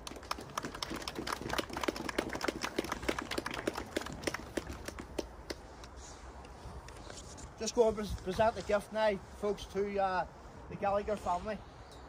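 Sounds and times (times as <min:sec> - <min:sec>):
small group applauding: 0:00.0 - 0:05.6.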